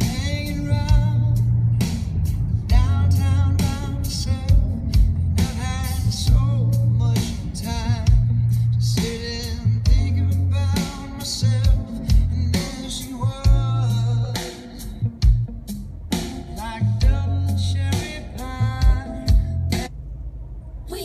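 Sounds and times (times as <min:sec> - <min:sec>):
rock song over car speakers: 0:00.0 - 0:19.9.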